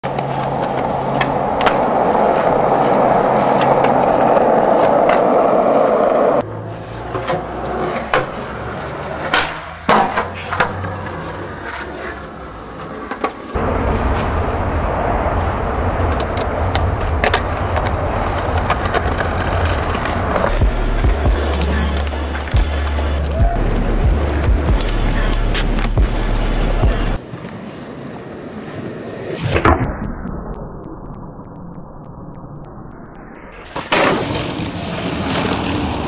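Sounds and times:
skateboard clacking on ground: 0:00.0 - 0:13.6, 0:16.0 - 0:20.6
skateboard wheels rolling on concrete: 0:00.0 - 0:29.8, 0:33.6 - 0:36.0.

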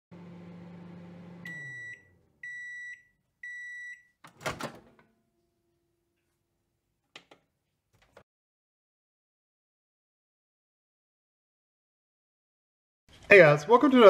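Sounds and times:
microwave oven humming: 0:00.1 - 0:05.2
microwave beeps: 0:00.5 - 0:04.6.

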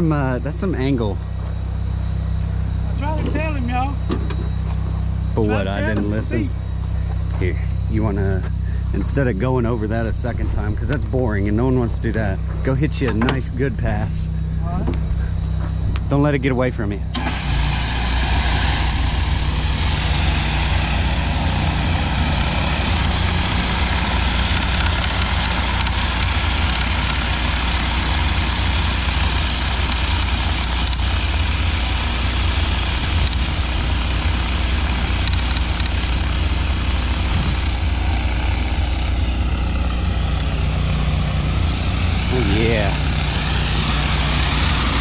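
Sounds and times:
pressure washer engine running: 0:02.6 - 0:04.9, 0:17.1 - 0:45.0
pressure washer spray hissing: 0:17.2 - 0:45.0.

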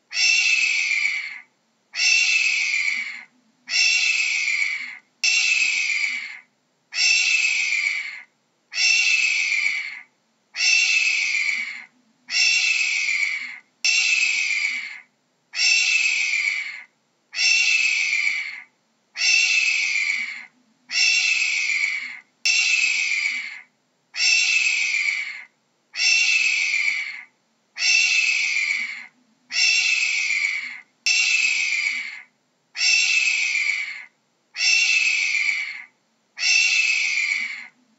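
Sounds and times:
hawk screaming: 0:00.1 - 0:37.8.

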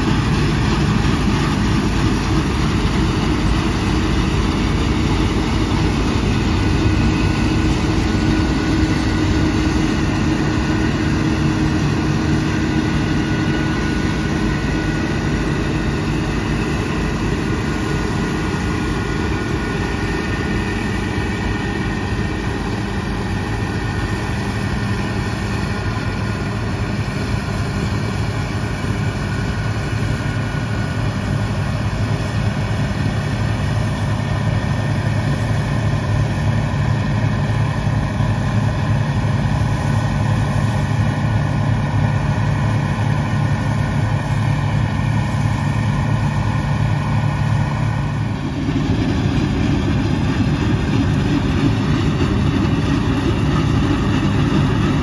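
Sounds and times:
diesel engine droning: 0:00.0 - 0:55.0.

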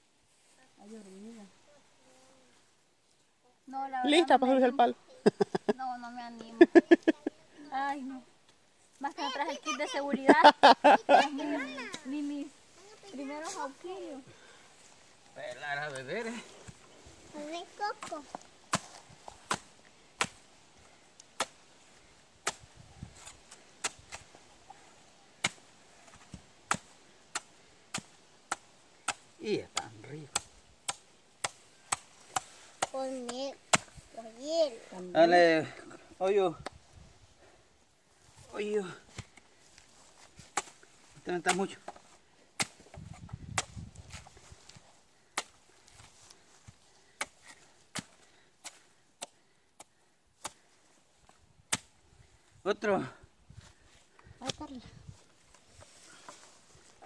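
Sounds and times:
machete chopping coconut husk: 0:18.0 - 0:20.5, 0:21.2 - 0:21.7, 0:22.4 - 0:24.3, 0:25.4 - 0:34.0, 0:40.4 - 0:42.0, 0:42.6 - 0:45.6, 0:46.6 - 0:50.7, 0:51.7 - 0:52.0
machete chopping coconut: 0:18.7 - 0:20.5, 0:25.4 - 0:25.7, 0:26.7 - 0:33.9, 0:41.4 - 0:42.0, 0:42.6 - 0:42.8, 0:45.3 - 0:45.6.

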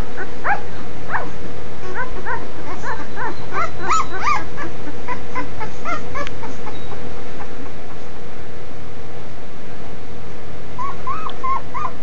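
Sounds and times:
puppies whimpering and squeaking: 0:00.2 - 0:07.8, 0:10.8 - 0:12.0.

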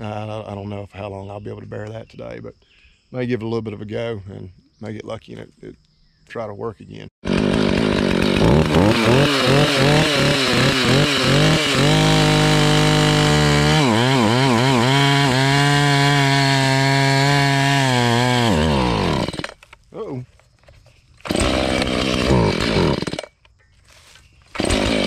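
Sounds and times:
chainsaw cutting log: 0:07.2 - 0:19.6, 0:21.2 - 0:23.4, 0:24.5 - 0:25.0.

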